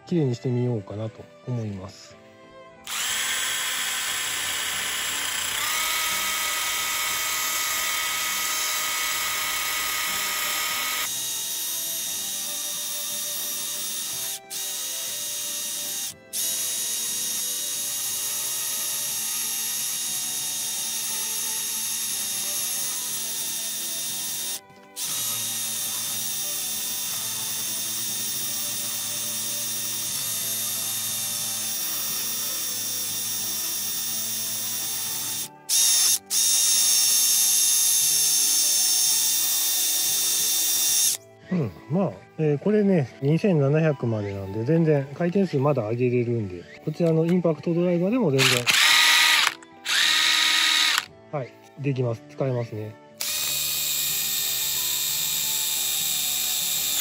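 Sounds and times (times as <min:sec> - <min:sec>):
impact driver motor whine: 0:02.8 - 0:41.2, 0:48.4 - 0:51.1, 0:53.2 - 0:57.0.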